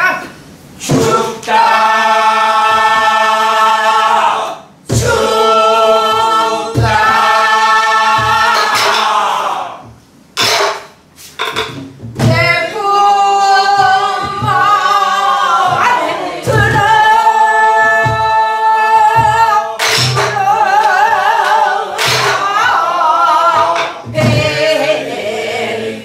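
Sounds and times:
several voices singing together: 0.8 - 10.6, 12.2 - 26.0
barrel drum strokes: 4.9 - 12.9, 13.5 - 25.1
drum stick strokes: 8.1 - 9.5, 10.4 - 12.5, 19.1 - 22.8
woman singing with wavering vibrato: 12.2 - 25.1.

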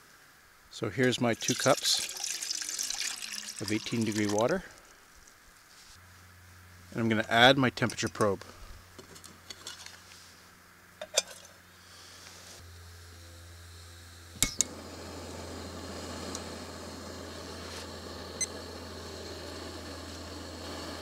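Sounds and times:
gas hissing from stove: 11.0 - 21.0.

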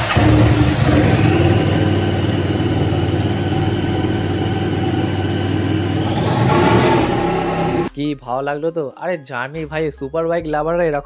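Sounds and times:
engine idling: 0.0 - 7.9.

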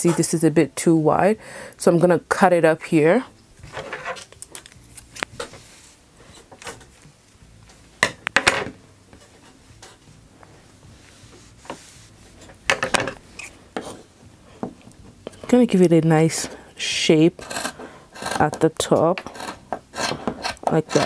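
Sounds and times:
fabric handled on tabletop: 10.0 - 12.6.

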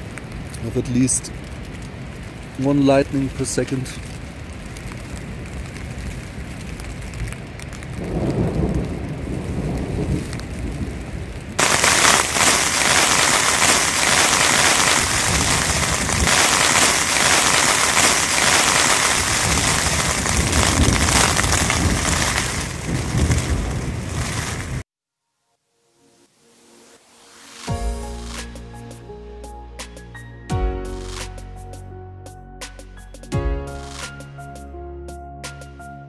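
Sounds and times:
heavy rain hissing: 0.0 - 24.8, 26.3 - 30.3, 30.9 - 31.8
low rumbling thunder: 5.0 - 24.8.

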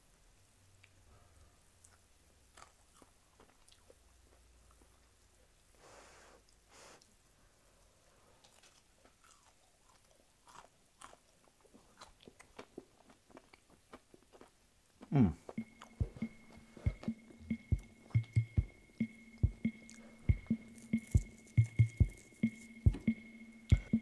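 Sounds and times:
chewing crunchy food: 1.8 - 5.0, 8.4 - 16.4, 18.9 - 22.8
mouth clicks: 15.0 - 24.0.

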